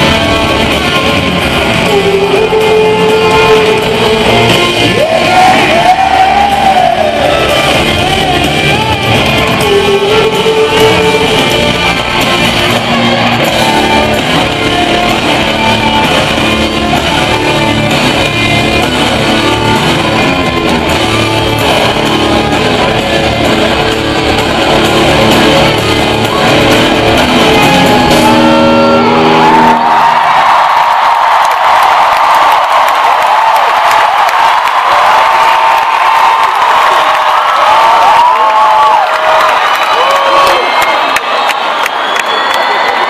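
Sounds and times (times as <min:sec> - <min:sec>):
live rock band playing: 0:00.0 - 0:30.9.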